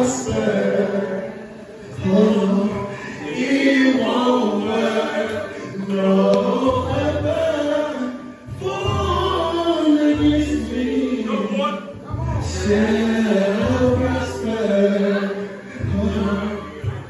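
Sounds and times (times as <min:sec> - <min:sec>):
keyboard: 0:00.0 - 0:17.0
person singing through pa: 0:00.0 - 0:17.0
low bass notes: 0:05.9 - 0:15.1, 0:15.7 - 0:17.0.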